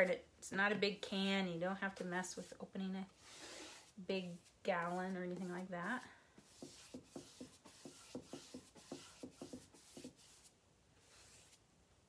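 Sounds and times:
paintbrush swishing on wood: 3.3 - 11.6.

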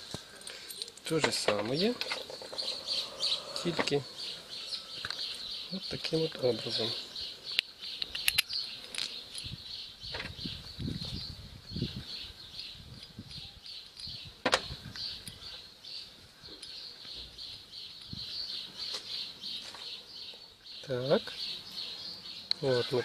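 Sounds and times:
high pulsing chirp: 1.8 - 19.7.

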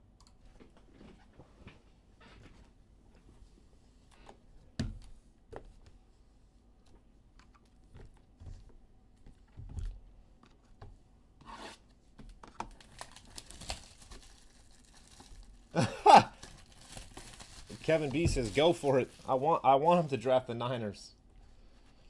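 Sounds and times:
shrink wrap crinkling and tearing: 12.6 - 19.4.

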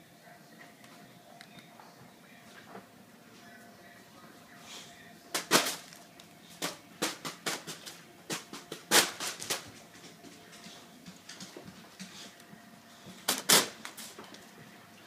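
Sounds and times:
foil balloon hit by fan blades: 5.3 - 5.9, 6.6 - 9.8.

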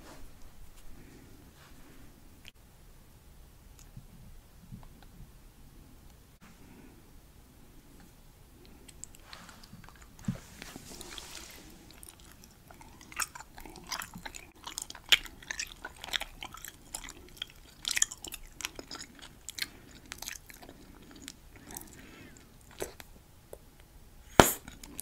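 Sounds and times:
gum chewing clicks and smacks: 8.6 - 10.4, 11.1 - 23.7.

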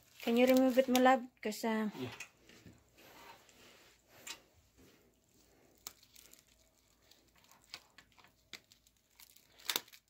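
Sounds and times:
plastic cling wrap rustling: 0.0 - 1.2, 5.2 - 10.0
sharp plastic crackles: 0.0 - 1.3, 5.5 - 10.0.

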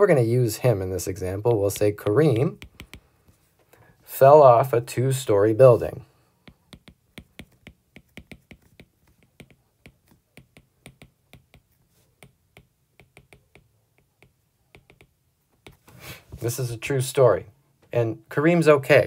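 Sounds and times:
stylus tapping on glass screen: 2.6 - 3.1, 6.4 - 15.8.

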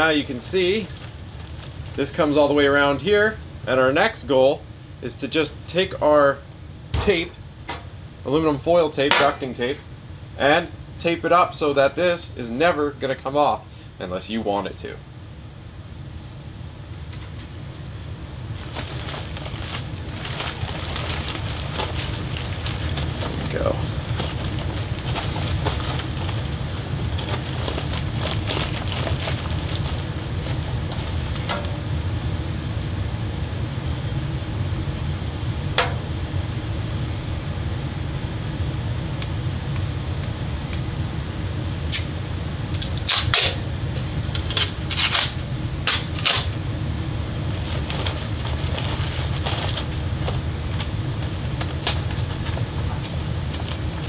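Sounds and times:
steady low hum: 0.0 - 54.0
foil tape crinkling and clicking: 0.2 - 2.1, 18.6 - 31.7, 42.7 - 46.6, 47.5 - 54.0.

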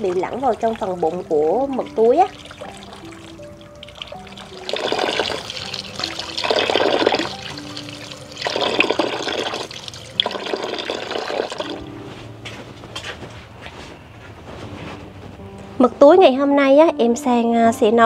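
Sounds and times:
water running: 0.0 - 11.9
soft background music: 0.0 - 18.0.

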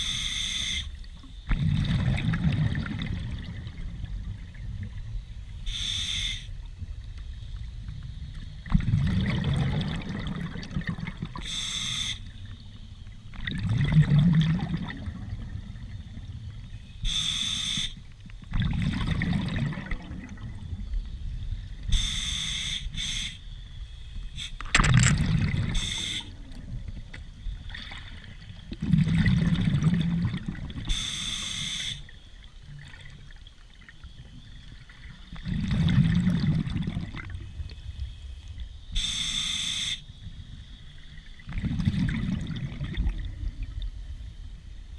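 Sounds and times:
regulator hissing inhale: 0.0 - 1.0, 5.7 - 6.5, 11.4 - 12.3, 17.0 - 18.0, 21.9 - 23.4, 25.7 - 26.3, 30.9 - 32.1, 39.0 - 40.1
exhaled bubbles rushing: 1.5 - 5.1, 8.4 - 11.5, 13.3 - 16.7, 18.4 - 21.0, 24.7 - 31.0, 34.8 - 37.6, 41.3 - 44.0.

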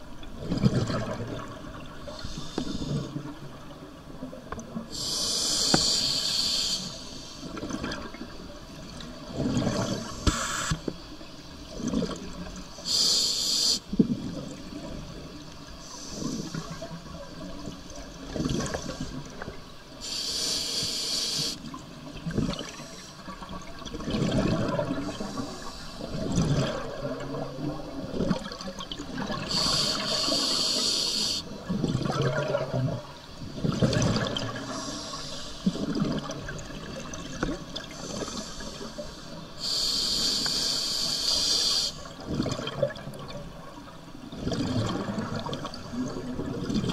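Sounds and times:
hissing regulator inhalation: 5.0 - 7.4, 12.9 - 13.9, 20.0 - 21.6, 29.5 - 31.4, 39.6 - 42.0.

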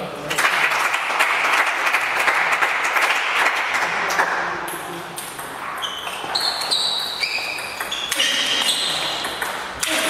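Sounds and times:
applause: 0.3 - 4.6
shoes squeaking on floor: 5.4 - 10.0
table tennis ball clicking: 7.4 - 8.2.

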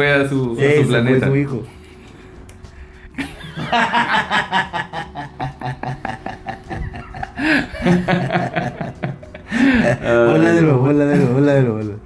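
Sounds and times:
men laughing: 3.1 - 11.5.

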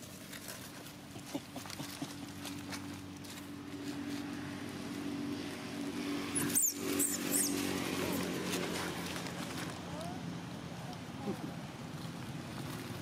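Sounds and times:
young monkey squealing: 6.4 - 7.6.

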